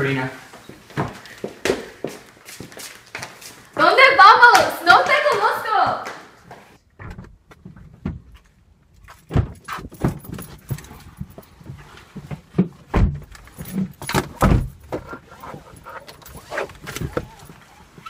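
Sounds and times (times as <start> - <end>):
seat-belt buckle jangle: 9.0 - 11.7, 13.2 - 17.8.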